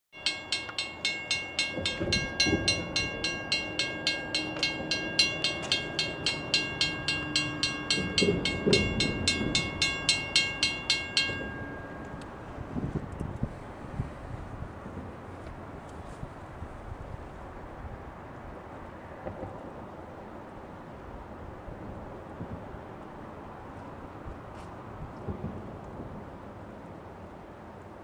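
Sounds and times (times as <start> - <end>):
railroad crossing bell ringing: 0.1 - 13.0.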